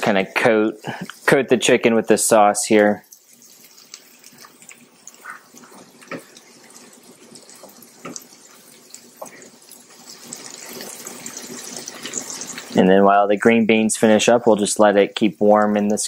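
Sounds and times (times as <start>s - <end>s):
sauce sizzling and bubbling in skillet: 0.0s - 16.0s.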